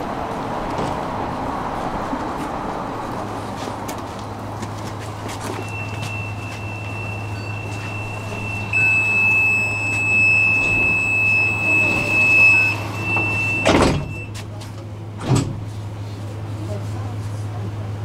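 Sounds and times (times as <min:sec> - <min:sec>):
tram electrical hum: 0:00.0 - 0:18.0
sliding doors shutting: 0:05.5 - 0:14.4, 0:15.2 - 0:15.7
steady high tone: 0:05.6 - 0:13.8.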